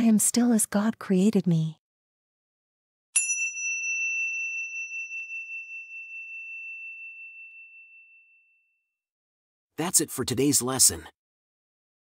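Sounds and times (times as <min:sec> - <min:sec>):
meditation chime ringing: 0:03.2 - 0:08.8.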